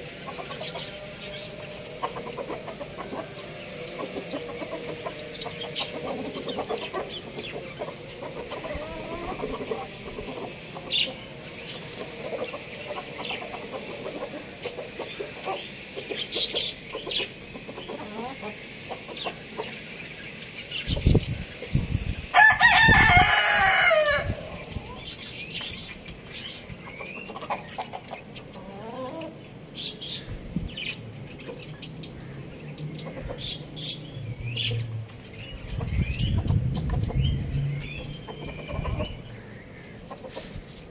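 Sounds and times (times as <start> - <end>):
chickens clucking: 0.0 - 40.9
rooster crowing: 22.3 - 24.5.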